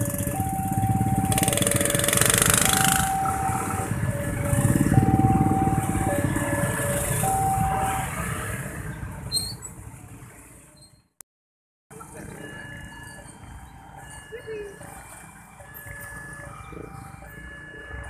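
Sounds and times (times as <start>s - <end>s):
two-tone crossing alarm chime: 0.0s - 8.3s, 12.1s - 18.0s
motorcycle engines: 0.0s - 10.8s, 11.9s - 18.0s.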